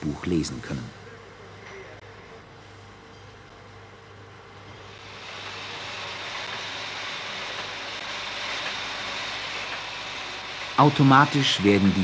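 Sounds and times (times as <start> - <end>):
printing press running: 4.3 - 12.0.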